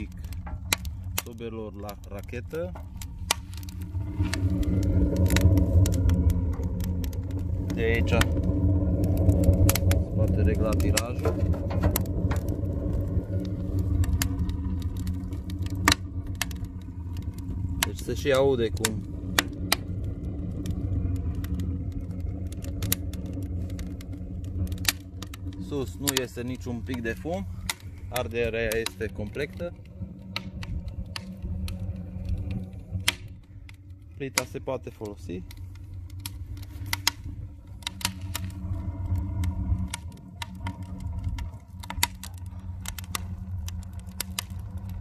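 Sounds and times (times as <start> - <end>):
stove fire rumbling: 0.0 - 45.0
wood crackling: 0.0 - 45.0.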